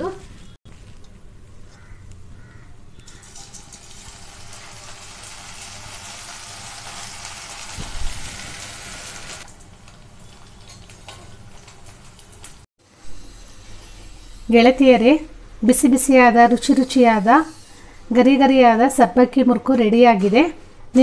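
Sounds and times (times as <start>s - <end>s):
dough frying in hot oil: 3.0s - 15.1s.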